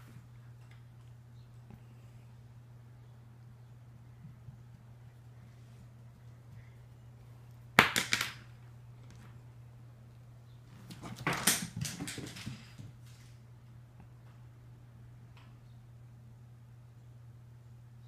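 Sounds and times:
pencil clattering on wooden floor: 7.8s - 8.5s, 10.9s - 12.9s.

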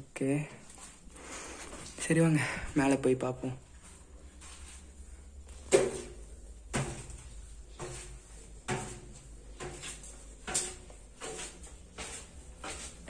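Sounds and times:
low steady hum: 0.0s - 13.0s
footsteps on metal stairs: 5.5s - 13.0s.

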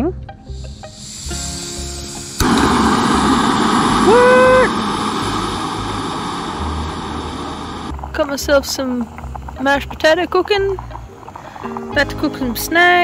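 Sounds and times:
gas burner roaring: 0.5s - 13.0s
stove lighting whoosh: 0.5s - 13.0s
short rising tone: 0.9s - 7.9s.

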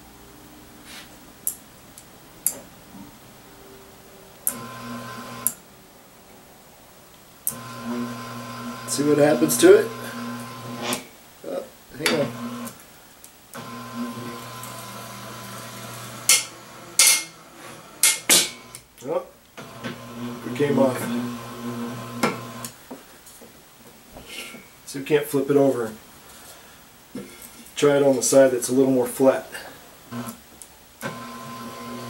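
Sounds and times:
actuator motor humming: 4.5s - 5.6s, 7.5s - 11.0s, 12.0s - 12.8s, 13.6s - 18.8s, 19.6s - 22.8s, 31.0s - 32.0s.

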